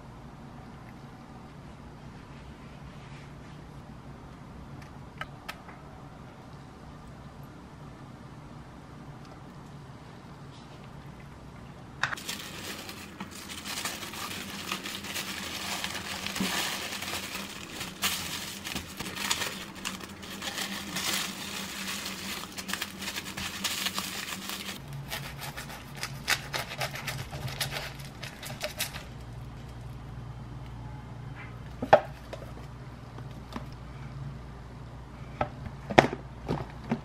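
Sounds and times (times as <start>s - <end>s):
plastic wrap crinkling: 12.1s - 29.9s
knife cutting sandwich: 25.1s - 28.8s.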